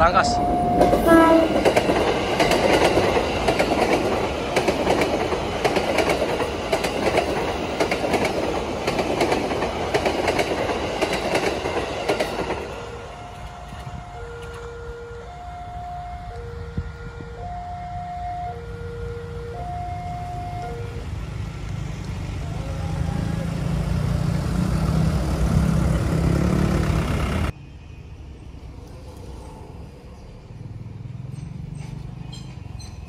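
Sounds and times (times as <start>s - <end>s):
crossing warning siren: 0.0s - 4.3s, 12.2s - 21.5s
train wheels clacking: 0.7s - 14.7s.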